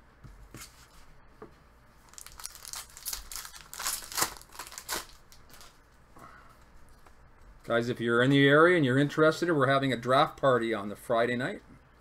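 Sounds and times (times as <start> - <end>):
foil wrapper crinkling and tearing: 2.1 - 5.8.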